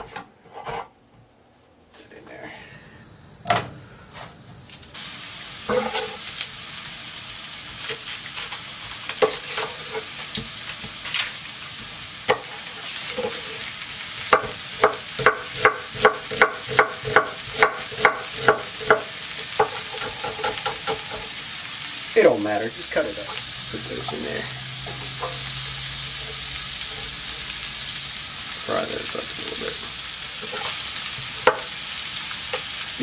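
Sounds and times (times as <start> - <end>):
sausage sizzling in skillet: 4.6 - 33.0
knife chopping on wooden board: 14.3 - 21.1.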